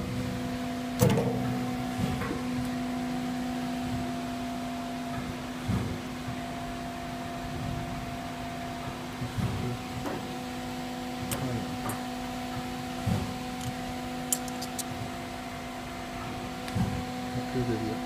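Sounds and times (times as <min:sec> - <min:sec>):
low machine hum: 0:00.0 - 0:18.0
metal parts clicking and knocking: 0:13.6 - 0:14.9.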